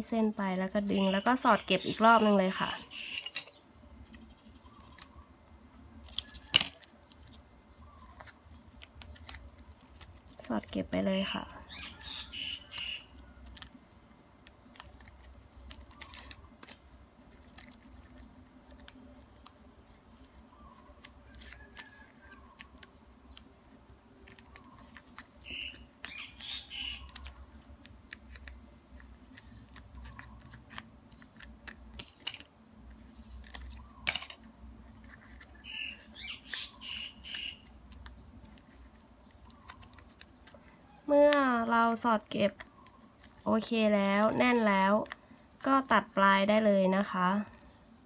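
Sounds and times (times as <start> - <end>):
ribbon strips crinkling: 14.4 - 23.5, 24.2 - 40.7.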